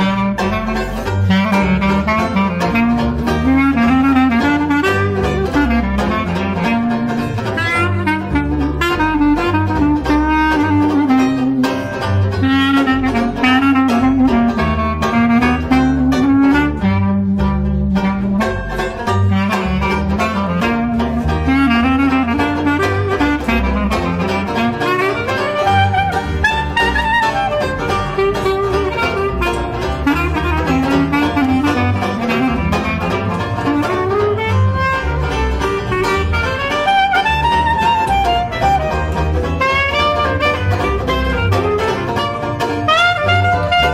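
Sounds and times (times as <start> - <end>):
clarinet melody: 0.0 - 43.9
strummed banjo: 0.0 - 43.9
walking double bass: 0.0 - 43.9.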